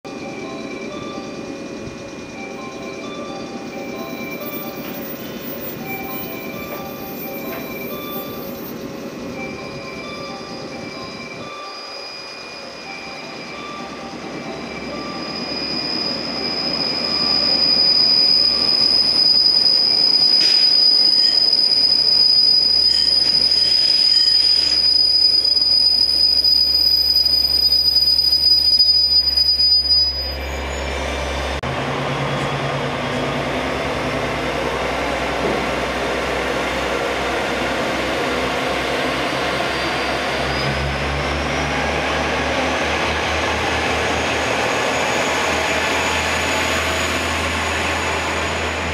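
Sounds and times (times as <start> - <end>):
train wheels squealing under braking: 0.1 - 31.6, 32.2 - 48.9
diesel engine droning: 30.4 - 48.9.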